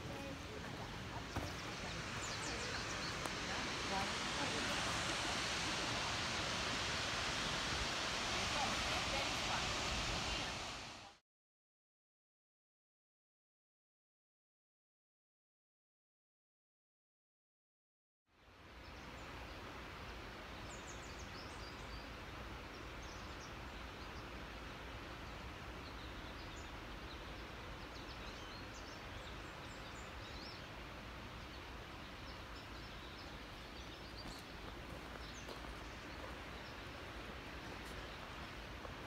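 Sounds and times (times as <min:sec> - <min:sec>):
small birds chirping: 0:00.0 - 0:10.8, 0:20.6 - 0:39.0
steady rushing hiss: 0:00.0 - 0:11.2, 0:18.4 - 0:39.0.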